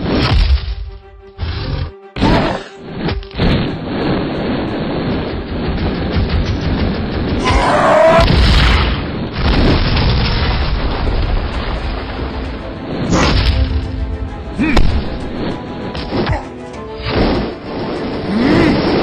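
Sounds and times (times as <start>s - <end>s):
fight scene music: 0.0s - 19.0s
deep booms and impacts: 3.0s - 16.2s.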